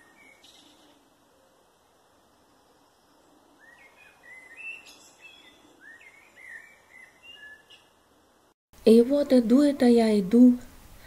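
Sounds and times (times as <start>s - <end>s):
birds chirping: 2.3s - 8.1s.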